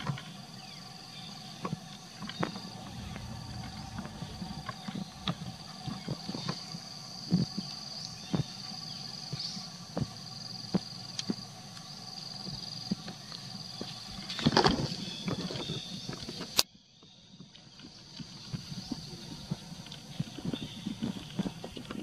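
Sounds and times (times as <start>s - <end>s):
high-pitched insect drone: 0.0s - 16.4s.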